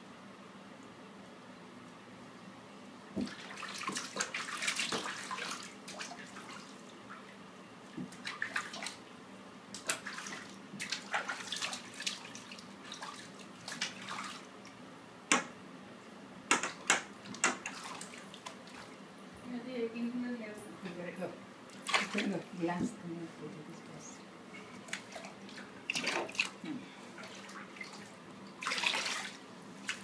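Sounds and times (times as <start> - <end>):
bathwater splashing: 3.2 - 6.9, 8.0 - 9.0, 9.8 - 14.6, 16.7 - 19.0, 21.7 - 23.0, 24.6 - 30.0.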